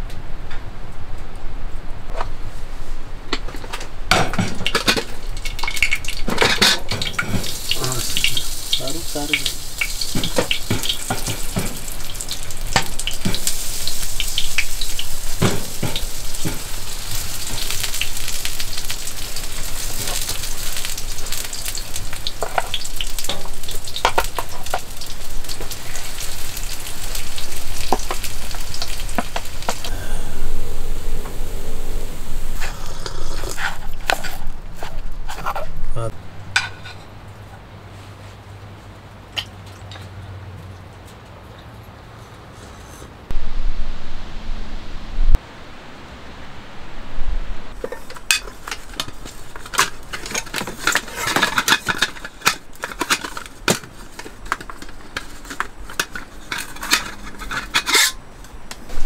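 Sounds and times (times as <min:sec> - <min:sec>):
drops and drips striking: 0:04.3 - 0:25.9
heavy rain hissing: 0:06.8 - 0:36.1, 0:43.3 - 0:50.1.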